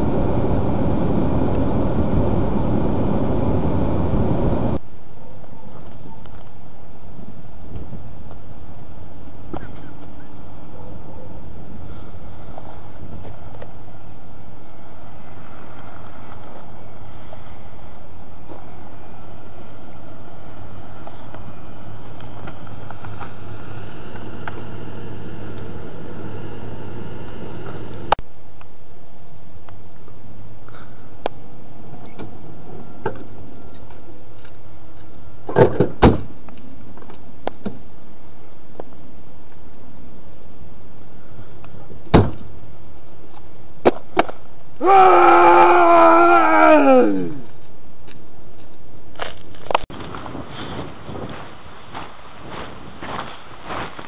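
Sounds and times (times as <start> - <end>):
car driving slowly: 0.0 - 4.8, 12.0 - 28.2
wind noise on microphone: 0.0 - 4.8.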